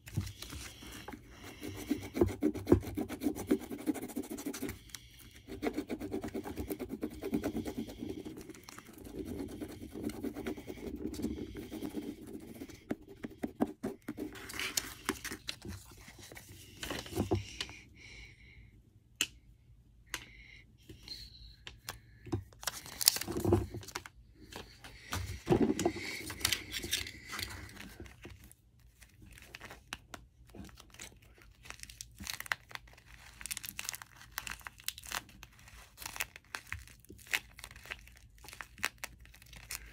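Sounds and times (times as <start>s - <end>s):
scratching paper scratch card: 0.2s - 17.2s, 25.7s - 28.0s
paper crinkling and tearing: 14.2s - 17.2s, 22.6s - 24.1s, 25.9s - 39.9s
taped paper squeezed with crunch: 30.6s - 39.9s.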